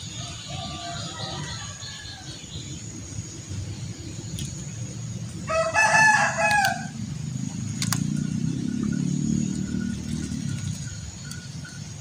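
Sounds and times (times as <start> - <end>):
rooster crowing: 0.2 - 2.3, 5.5 - 7.0.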